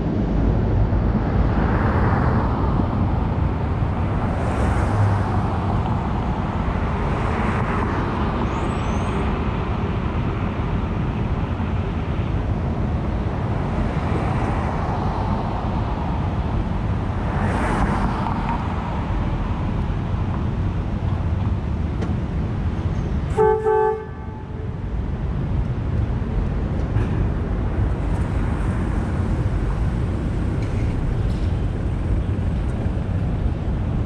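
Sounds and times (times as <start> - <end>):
streetcar rumbling: 0.0 - 34.0
horn toots: 23.3 - 24.4.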